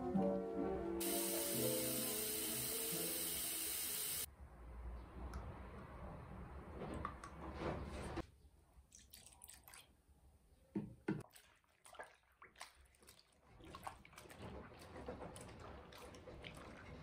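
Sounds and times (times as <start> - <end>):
water sloshing in a basin: 8.8 - 10.1, 11.2 - 17.0.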